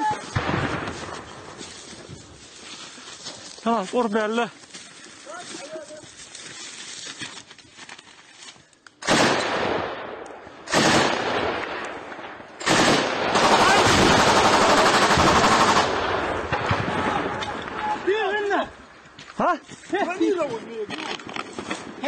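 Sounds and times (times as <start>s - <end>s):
rapid automatic gunfire: 10.7s - 11.4s, 12.6s - 16.9s.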